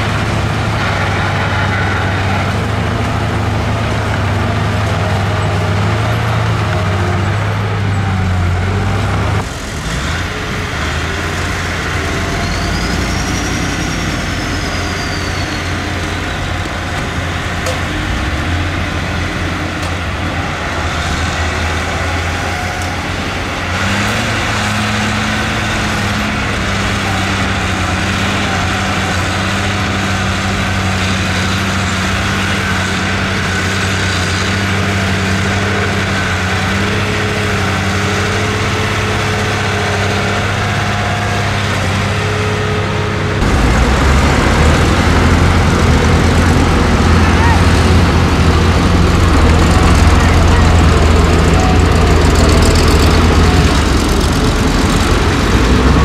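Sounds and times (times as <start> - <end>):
heavy diesel engine running: 0.0 - 56.0.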